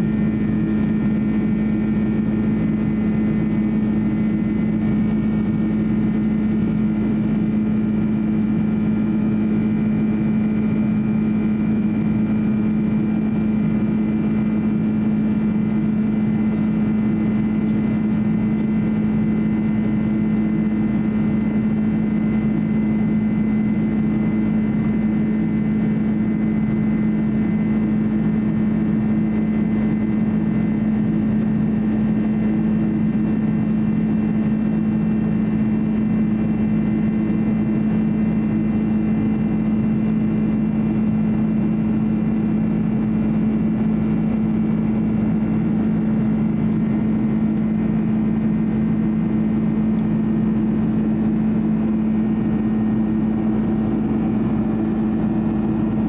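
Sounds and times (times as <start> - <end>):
airplane cabin engine drone: 0.0 - 56.0.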